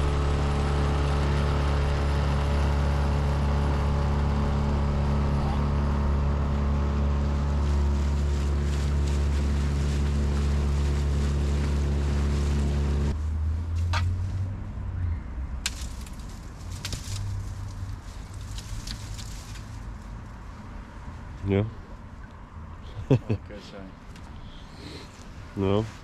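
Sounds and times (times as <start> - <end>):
boat motor running: 0.0 - 13.1.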